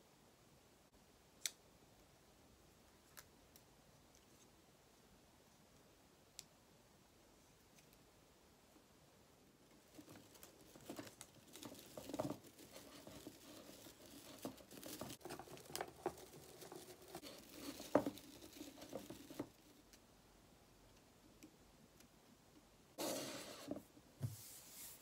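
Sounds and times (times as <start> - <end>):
plastic needles rustling: 9.7 - 20.0.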